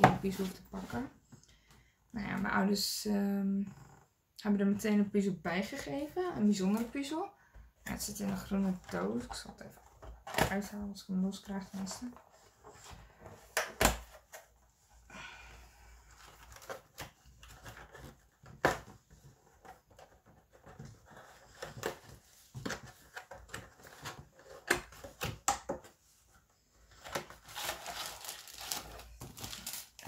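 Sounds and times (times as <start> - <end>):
cardboard rustling: 26.0 - 30.0.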